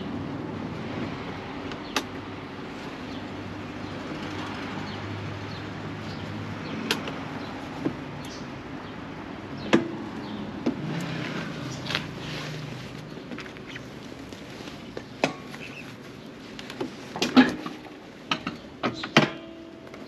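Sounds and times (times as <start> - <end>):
sharp clicks and knocks: 6.8 - 7.2, 16.6 - 19.4.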